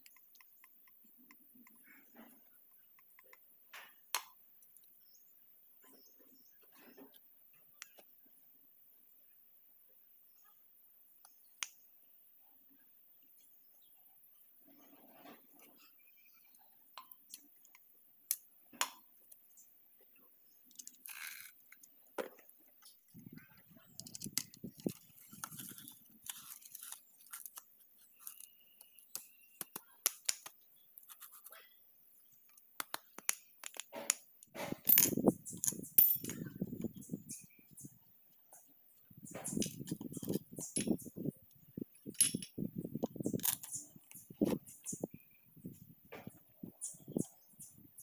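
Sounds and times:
small metal clicks and clinks: 34.8 - 36.5, 39.3 - 41.2, 42.0 - 42.6.

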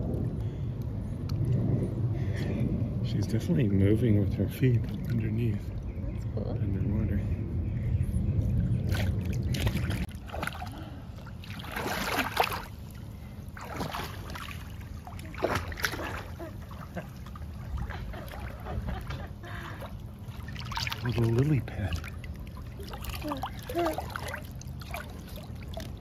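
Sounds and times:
low steady rumble: 0.0 - 26.0
pool water sloshing and splashing: 4.4 - 6.5, 8.6 - 26.0.

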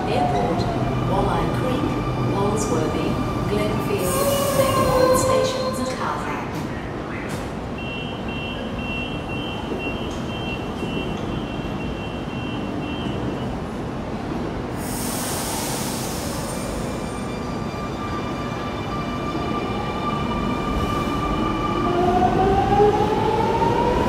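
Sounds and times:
two-tone door warning beep: 7.8 - 13.6
air hiss burst: 14.8 - 16.8.

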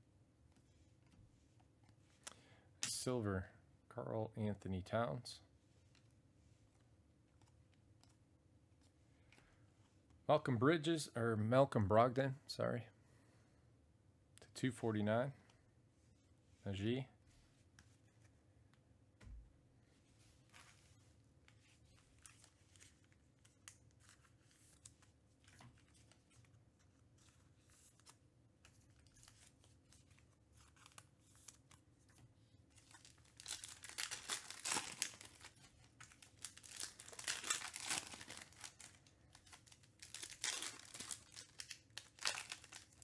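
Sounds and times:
foil wrappers tearing and crinkling: 32.9 - 43.0.

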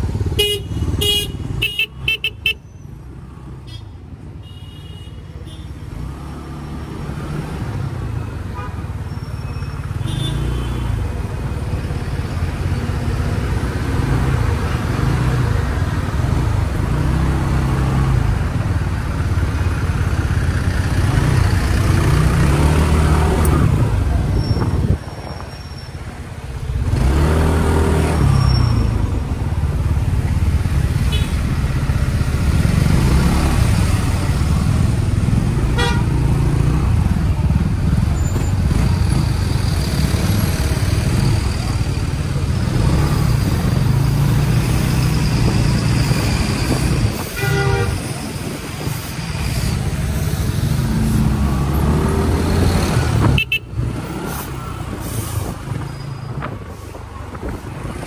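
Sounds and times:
vehicle horn toots: 0.4 - 2.6, 35.8 - 36.1, 47.3 - 48.0, 53.3 - 53.7.

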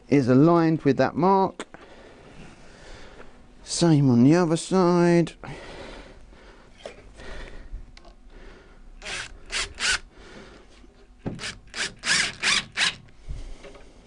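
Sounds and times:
cordless drill driving screw into wood: 9.0 - 10.0, 11.3 - 13.1.

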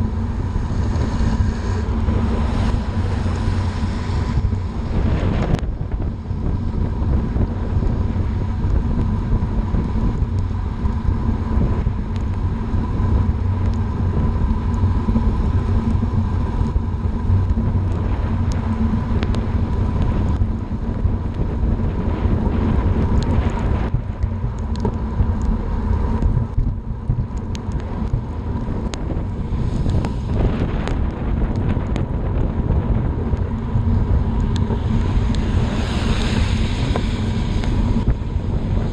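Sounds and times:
wind buffeting microphone: 0.0 - 38.9
small ticks: 23.1 - 25.6.

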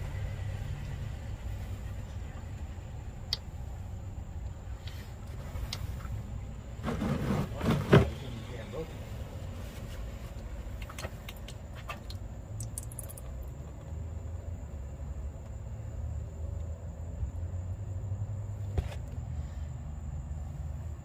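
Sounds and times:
steady low rumble: 0.0 - 6.8
oil trickling into pan: 12.6 - 13.3.

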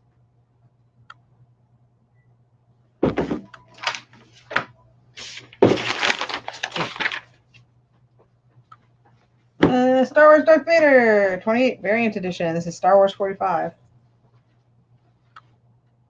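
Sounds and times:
paper and plastic rustling: 3.7 - 7.6.

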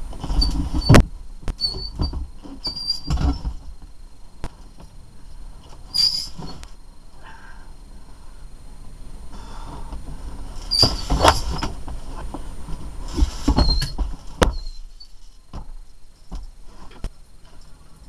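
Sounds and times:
scraping with high squeaks: 0.0 - 3.7, 5.6 - 6.8, 10.5 - 17.9.

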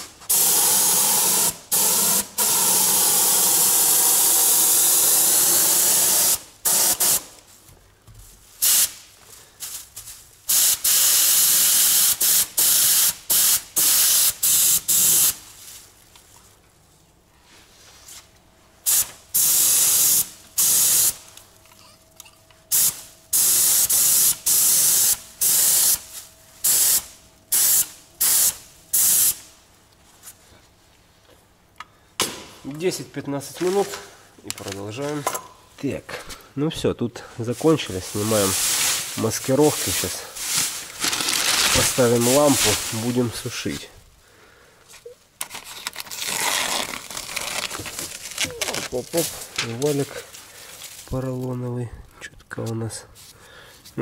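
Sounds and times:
paint spray gun hissing: 0.3 - 7.3, 10.5 - 15.4, 18.8 - 21.2, 22.7 - 29.4.

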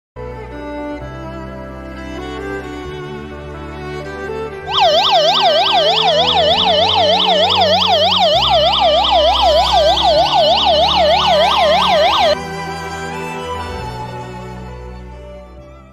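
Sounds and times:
electronic siren warbling: 4.7 - 12.4.

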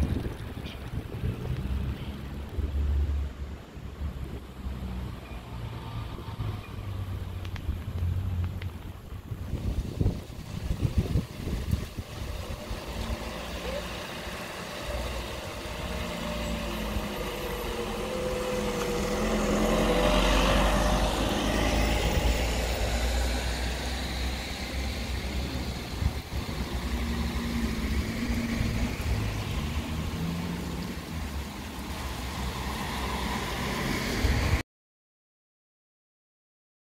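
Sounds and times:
wind rumbling on microphone: 0.0 - 13.6, 14.2 - 34.6
car passing on wet road: 0.0 - 34.6
tyres hissing on wet asphalt: 0.2 - 34.6
car engine: 6.1 - 34.6.

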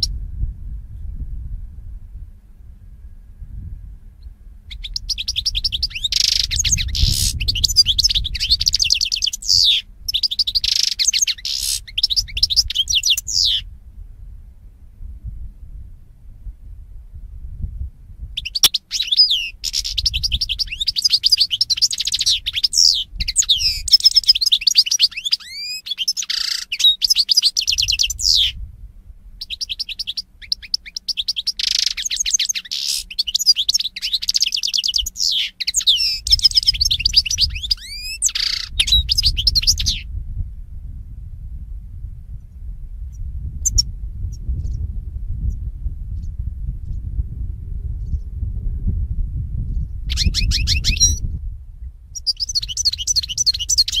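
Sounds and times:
goldfinch singing: 4.7 - 13.7, 18.4 - 28.6, 29.4 - 40.0, 43.6 - 43.8, 50.1 - 51.2, 52.2 - 54.0.

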